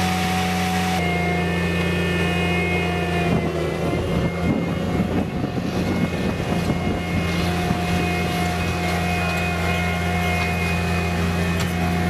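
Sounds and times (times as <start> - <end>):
diesel engine running: 0.0 - 12.0
rough uneven mechanical noise: 0.0 - 12.0.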